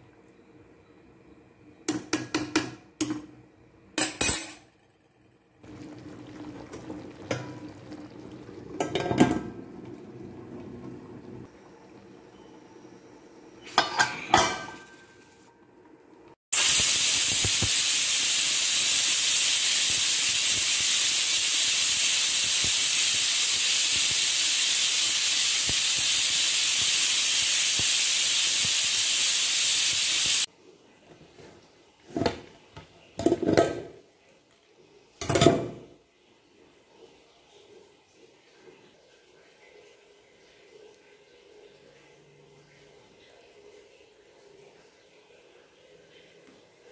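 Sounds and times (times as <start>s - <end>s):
pressure cooker releasing steam: 16.5s - 30.5s.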